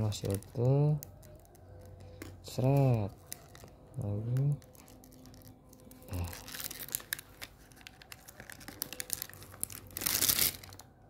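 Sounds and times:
seal peeling with crackles: 2.6 - 10.8
paper tearing rip: 9.6 - 10.8.

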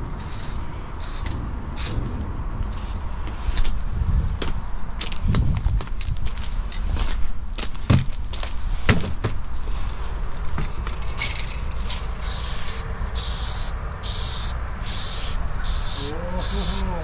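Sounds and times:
steady low rumble: 0.0 - 17.0
aerosol spray can hissing: 12.2 - 17.0.

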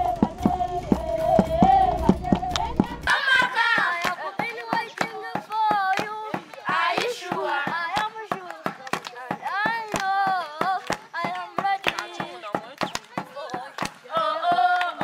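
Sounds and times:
low rumble: 0.0 - 3.1
rhythmic hand clapping: 0.0 - 15.0
women and children singing: 0.0 - 15.0.

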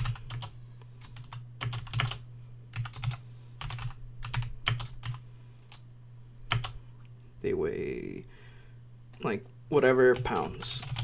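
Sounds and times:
typing on a computer keyboard: 0.0 - 5.8, 6.5 - 6.8, 10.1 - 11.0.

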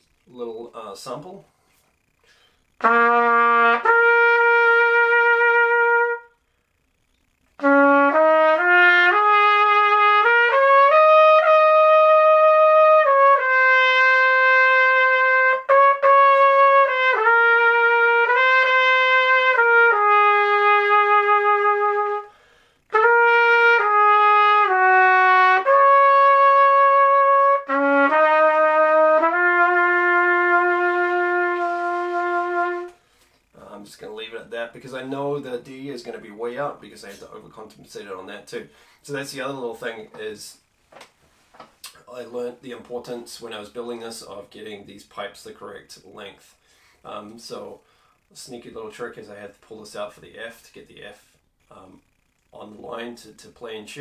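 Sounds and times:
solo trumpet melody: 2.8 - 6.4, 7.6 - 33.1.

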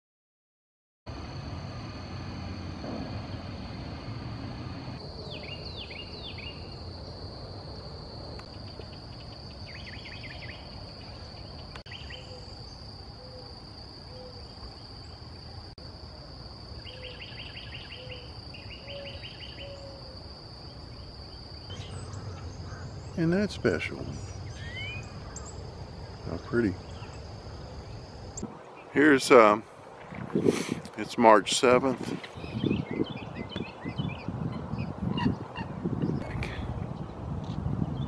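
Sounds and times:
songbird singing trills: 5.0 - 6.9, 8.4 - 15.2, 16.7 - 29.3, 32.2 - 37.2.

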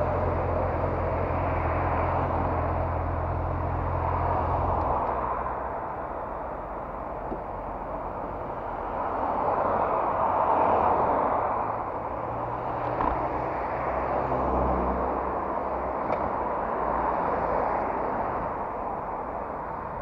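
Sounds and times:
motorcycle engine hum: 0.0 - 8.9
wind and road noise: 0.0 - 20.0.

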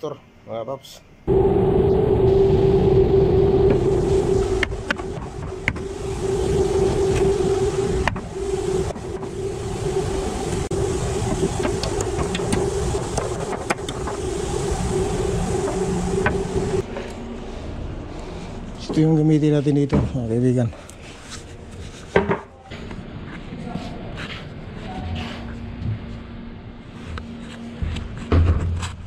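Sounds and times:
low rumble: 1.3 - 18.8
steady machine hum: 1.3 - 19.3.

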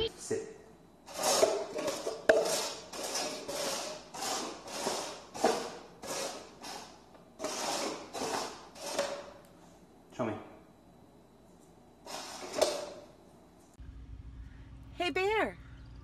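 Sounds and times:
plastic cups scraping on wooden floor: 1.1 - 9.4, 12.0 - 13.0.

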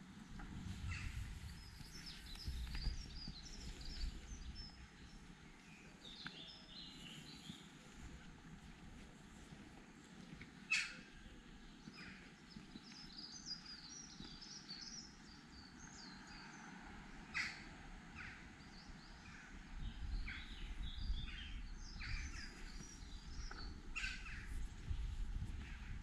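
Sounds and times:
songbirds chirping and trilling: 0.1 - 8.5, 9.4 - 26.0
sharp bird calls: 10.7 - 11.2, 17.3 - 18.5, 20.2 - 24.6.

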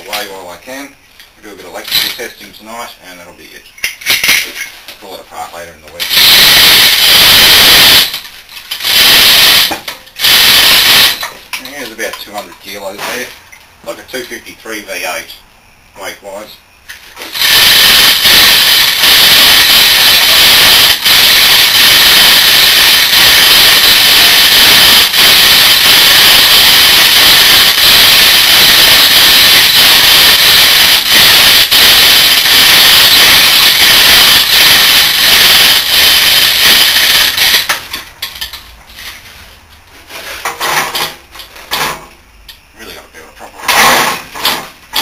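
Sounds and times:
electric chain hoist running: 8.0 - 11.2, 17.3 - 27.4, 32.3 - 37.7.

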